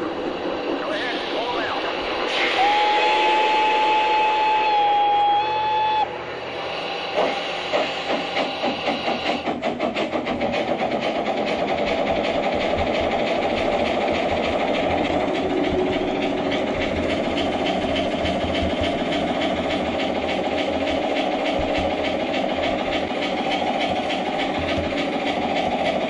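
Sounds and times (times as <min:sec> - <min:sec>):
electronic steam hiss: 0:00.0 - 0:09.5
steam locomotive chuffing: 0:00.0 - 0:26.0.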